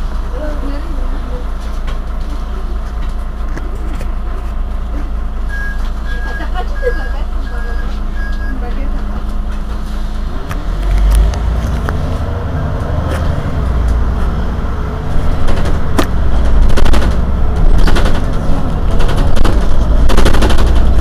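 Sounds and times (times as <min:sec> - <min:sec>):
bus engine idling: 0:00.0 - 0:21.0
rapid crackle of clicks: 0:16.5 - 0:21.0.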